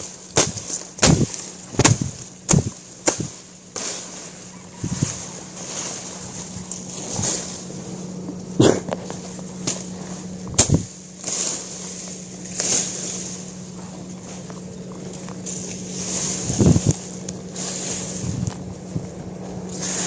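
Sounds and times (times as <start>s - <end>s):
grass brushing against microphone: 0.0s - 20.0s
steady low hum: 0.0s - 20.0s
sharp snap: 10.6s - 11.5s.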